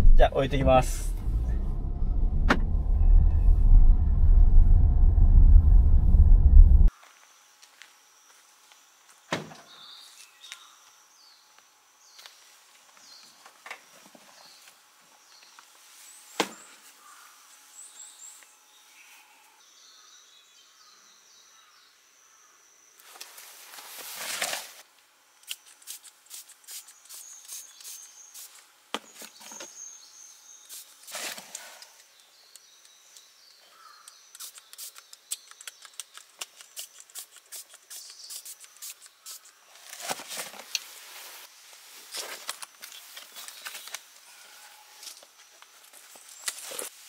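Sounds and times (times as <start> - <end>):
faint bird chirps: 32.2 - 36.9.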